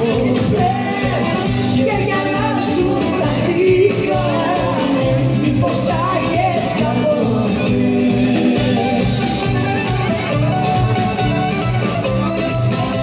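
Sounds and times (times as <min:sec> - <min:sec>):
woman singing lead vocal: 0:00.0 - 0:09.2
backing singers: 0:00.0 - 0:09.6
live band playing: 0:00.0 - 0:13.0.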